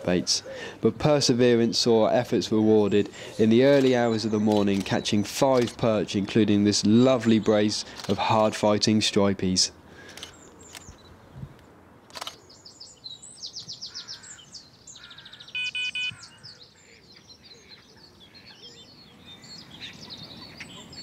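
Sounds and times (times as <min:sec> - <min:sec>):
small birds chirping: 0:02.7 - 0:06.2, 0:10.0 - 0:11.5, 0:12.2 - 0:21.0
short electronic beeps: 0:15.5 - 0:16.2.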